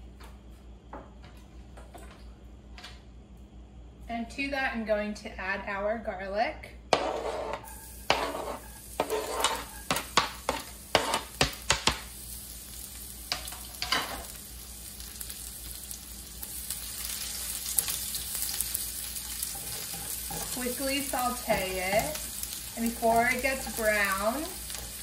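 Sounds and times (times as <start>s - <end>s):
spatula stirring in pan: 6.9s - 12.0s, 16.4s - 25.0s
garlic sizzling in oil: 7.0s - 25.0s.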